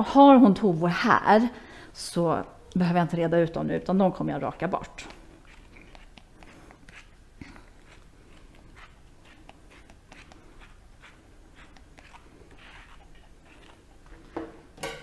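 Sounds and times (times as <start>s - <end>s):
brush strokes through dog fur: 5.0s - 14.2s.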